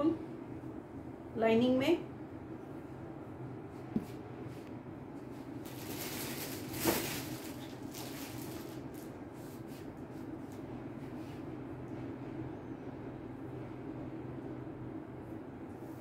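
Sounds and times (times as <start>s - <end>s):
low steady hum: 0.0s - 16.0s
cloth rustling: 5.4s - 9.9s.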